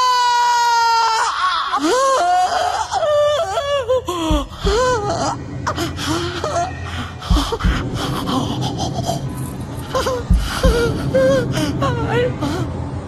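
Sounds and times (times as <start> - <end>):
low thumps: 4.2 - 5.8, 7.2 - 11.6.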